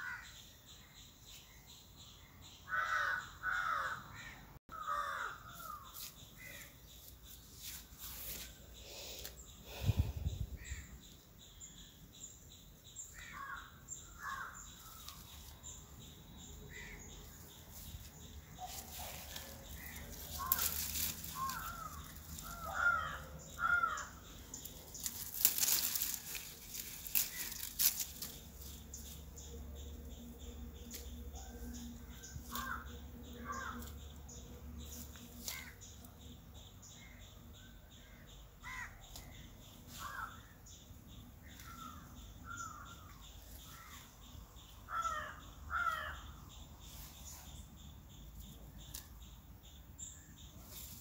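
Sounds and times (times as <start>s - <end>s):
crow cawing: 2.7s - 5.4s, 21.4s - 24.2s, 32.6s - 32.8s, 33.4s - 33.8s, 38.6s - 38.9s, 44.9s - 46.3s
leaves and stems crackling: 5.5s - 9.9s, 14.6s - 36.2s, 48.4s - 49.3s.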